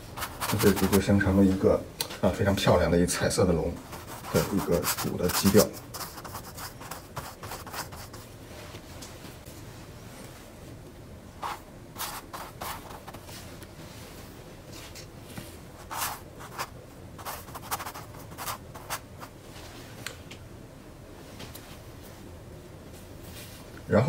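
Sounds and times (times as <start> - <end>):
paintbrush strokes on canvas: 0.0 - 1.2, 3.8 - 8.9, 11.4 - 19.8.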